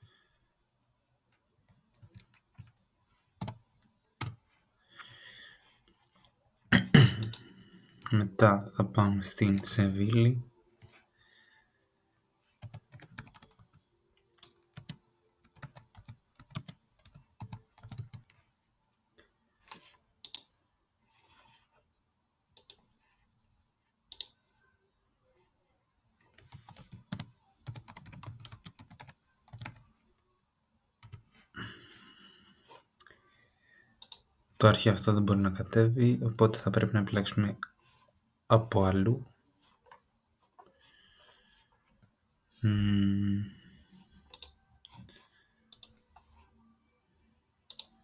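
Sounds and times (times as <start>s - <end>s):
typing on computer keyboard: 1.9s - 2.8s, 12.6s - 13.8s, 14.4s - 18.4s, 26.4s - 29.9s, 31.0s - 31.2s.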